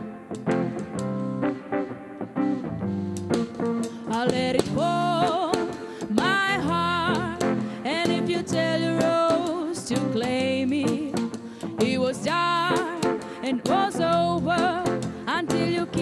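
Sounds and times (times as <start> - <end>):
electric guitar: 0.0 - 16.0
woman singing: 4.0 - 16.0.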